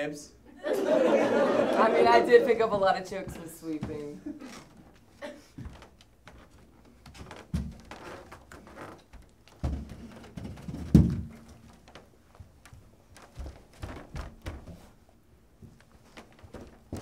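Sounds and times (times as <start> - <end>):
dull thumps: 5.6 - 17.0.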